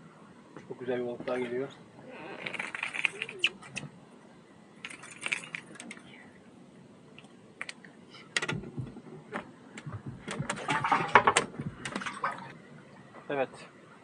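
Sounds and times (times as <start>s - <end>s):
fishing tackle clicking and rattling: 4.8s - 6.0s.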